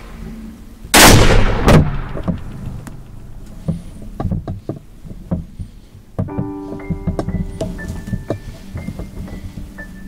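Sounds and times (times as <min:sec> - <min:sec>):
rifle shot: 0:00.9 - 0:03.2
knocks and clicks of handling gear: 0:02.2 - 0:09.8
piano-like music: 0:06.2 - 0:10.0.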